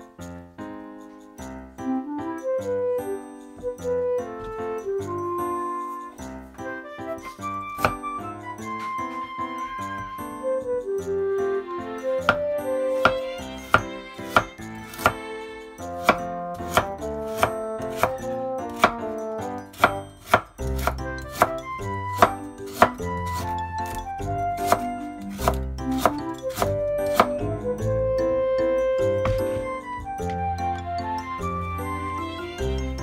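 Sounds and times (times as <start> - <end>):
background music: 0.0 - 33.0
knife tapping on cutting board: 7.8 - 8.0, 13.0 - 15.2, 16.0 - 18.1, 18.7 - 19.0, 19.7 - 21.6, 22.2 - 24.0, 24.6 - 24.8, 25.4 - 27.4, 29.2 - 30.4.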